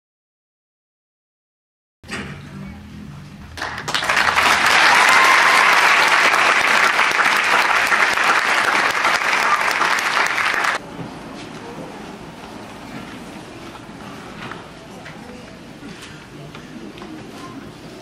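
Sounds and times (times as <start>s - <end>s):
audience applause: 3.6s - 10.8s.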